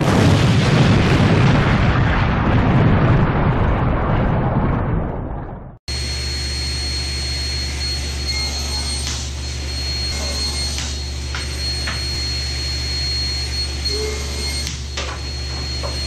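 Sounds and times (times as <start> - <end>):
table saw running: 5.9 - 16.0.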